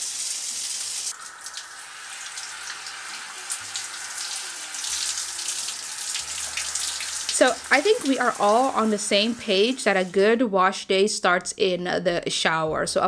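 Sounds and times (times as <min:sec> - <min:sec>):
shower spraying water on hair: 0:00.0 - 0:10.2.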